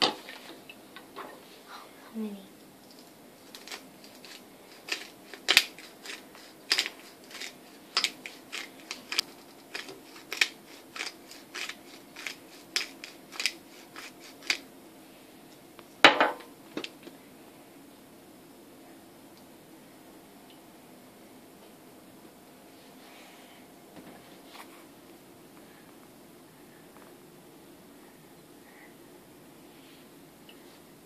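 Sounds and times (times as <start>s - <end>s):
pepper mill grinding: 2.9s - 14.6s.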